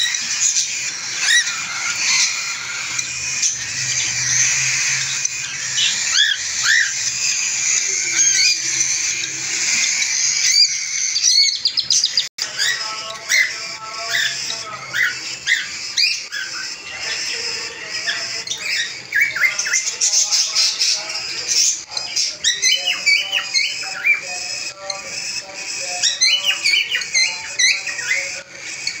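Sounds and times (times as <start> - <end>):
cockatiels chirping: 0.0 - 29.0.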